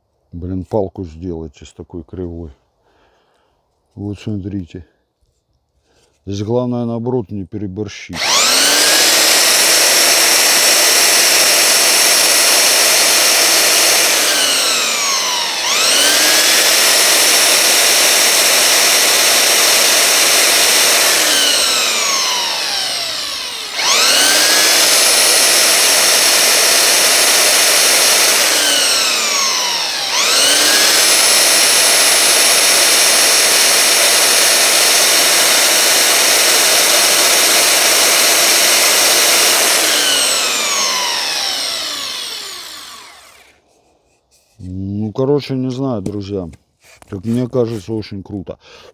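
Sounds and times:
belt sander motor whine: 0:08.2 - 0:43.7
wood sanding on belt: 0:08.2 - 0:45.0, 0:46.8 - 0:48.0.

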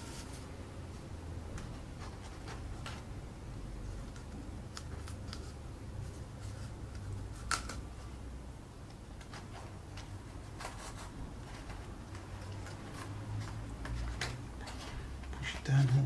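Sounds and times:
cardboard rustling: 0:00.0 - 0:00.5, 0:09.2 - 0:16.0
faint low hum: 0:00.0 - 0:16.0.

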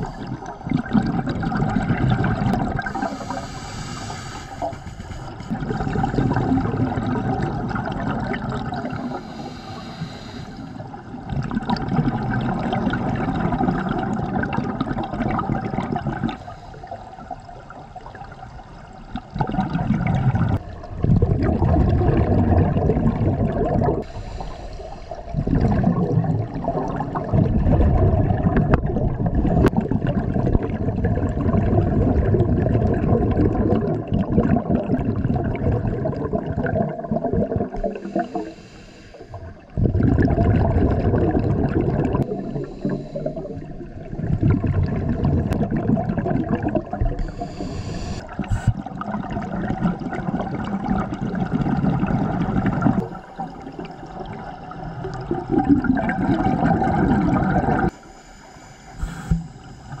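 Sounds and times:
underwater bubbling of exhaled air: 0:00.0 - 1:00.0
faint hiss of inhaling: 0:02.9 - 0:05.6, 0:08.9 - 0:11.0, 0:16.4 - 0:17.2, 0:24.0 - 0:25.4, 0:38.0 - 0:39.6, 0:42.2 - 0:43.7, 0:47.2 - 0:48.9, 0:57.9 - 1:00.0.

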